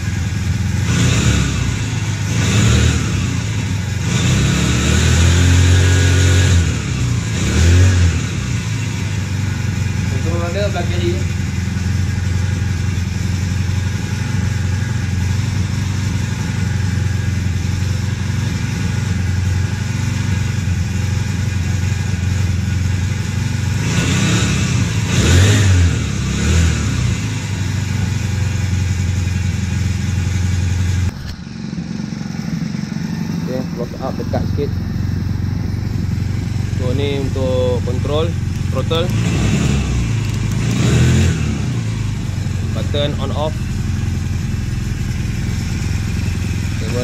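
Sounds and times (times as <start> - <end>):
outboard engine idling and revving: 0.0 - 47.0.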